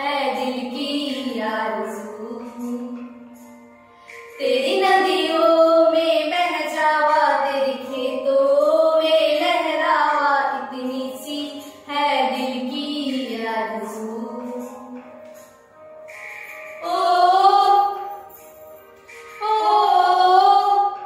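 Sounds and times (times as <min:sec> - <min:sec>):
two women singing: 0:00.0 - 0:03.3, 0:04.4 - 0:14.9, 0:19.4 - 0:21.0.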